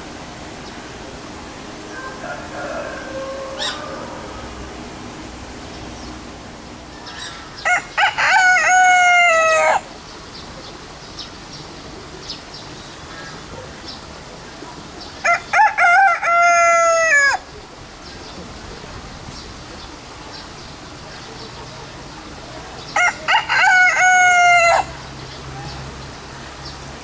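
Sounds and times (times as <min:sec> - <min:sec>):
rooster crowing: 0:01.9 - 0:04.8, 0:07.1 - 0:09.9, 0:15.2 - 0:17.4, 0:22.9 - 0:25.0.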